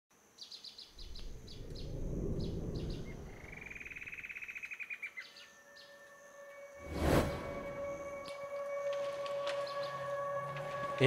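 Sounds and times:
bird chirping: 0.4 - 8.9
low rumble: 1.0 - 4.4, 6.8 - 8.3
faint high whine: 5.3 - 11.0.

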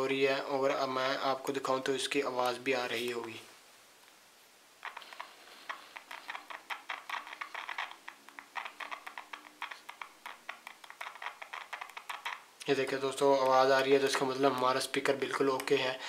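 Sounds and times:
speaker crackling with faint clicks: 2.3 - 3.4, 4.8 - 16.0.

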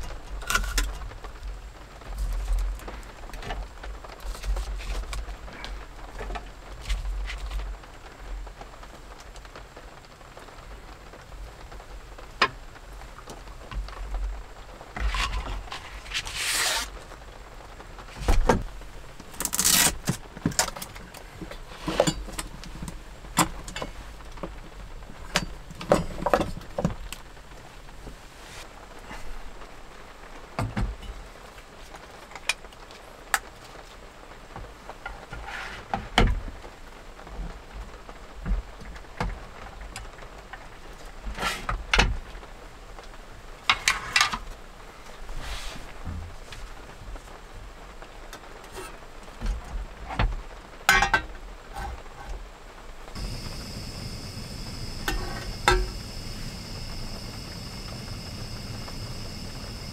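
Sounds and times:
light rain falling: 0.0 - 59.9
cooking gear knocking and clinking: 55.0 - 56.1.

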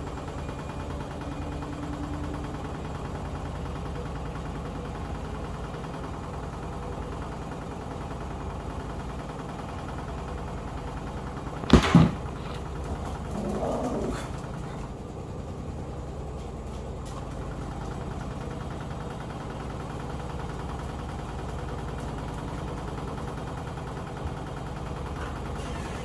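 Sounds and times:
washing machine humming: 0.0 - 26.0
sharp knocks: 11.6 - 12.6.

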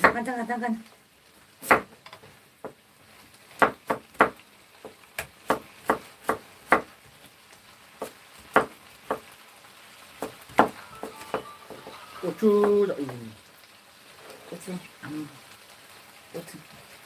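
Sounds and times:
knife chopping on wooden board: 1.6 - 2.0, 3.6 - 6.9, 8.0 - 9.3, 10.2 - 11.5.

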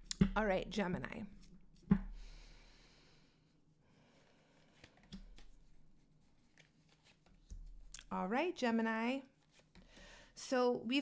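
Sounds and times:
cards tapping and rustling: 4.8 - 5.7.

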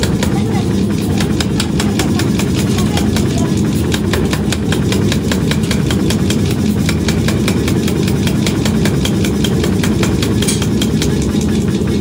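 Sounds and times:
machine rumble: 0.0 - 12.0
power hammer striking metal: 0.0 - 12.0.

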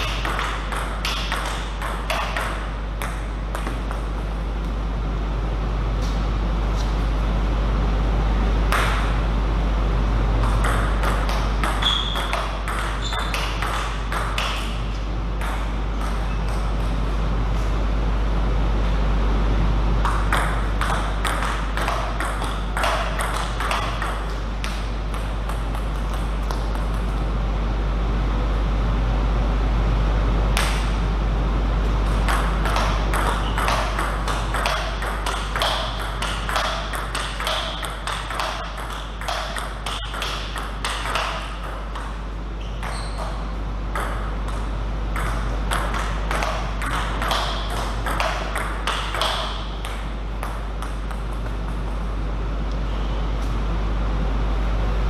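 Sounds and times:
table tennis ball knocking: 0.0 - 4.2, 10.4 - 14.8, 15.4 - 16.9, 20.0 - 27.1, 32.1 - 42.2, 42.8 - 52.0
steady low hum: 0.0 - 55.0.

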